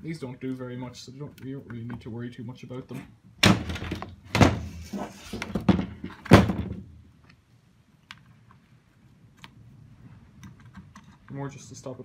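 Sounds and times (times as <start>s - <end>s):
plastic unit thunking: 3.4s - 4.8s, 5.4s - 6.9s.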